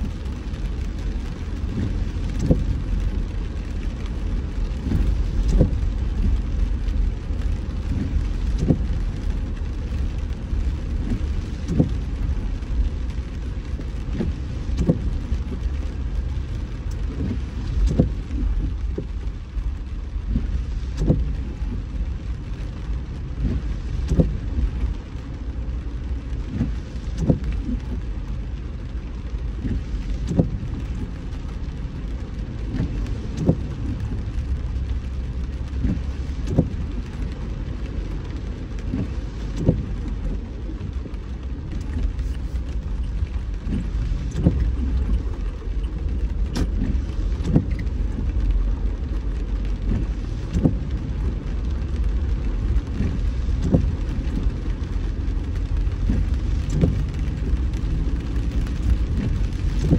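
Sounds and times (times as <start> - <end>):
car road rumble: 0.0 - 59.9
rain: 0.0 - 59.9.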